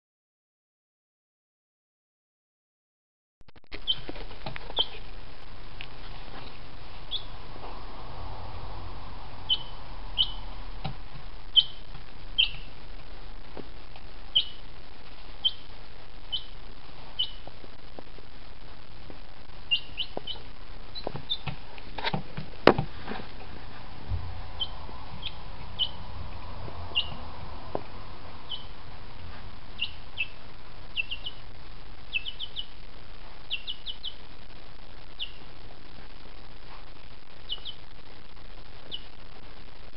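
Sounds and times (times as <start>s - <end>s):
background hiss: 3.6s - 39.9s
chick peeping: 3.7s - 5.1s, 6.4s - 7.9s, 9.3s - 12.8s, 14.3s - 17.5s, 19.6s - 21.6s, 24.1s - 28.9s, 29.7s - 34.3s, 35.0s - 35.6s, 37.3s - 37.9s, 38.8s - 39.2s.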